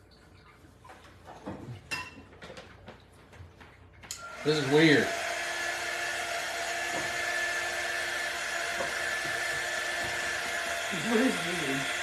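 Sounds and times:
heat tool fan whirring: 4.0s - 12.0s.

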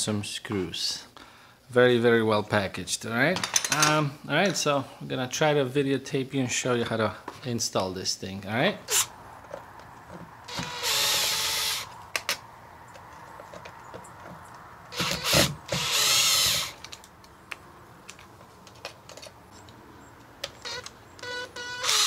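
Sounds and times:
cordless driver whirring: 10.5s - 12.0s, 14.9s - 16.9s, 20.6s - 22.0s.

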